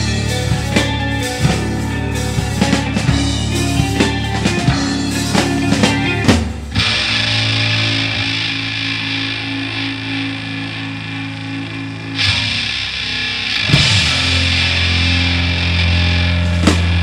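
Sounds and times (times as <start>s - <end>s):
drum strokes: 0.0s - 7.5s
distorted electric guitar: 0.0s - 17.0s
sustained bass notes: 0.0s - 17.0s.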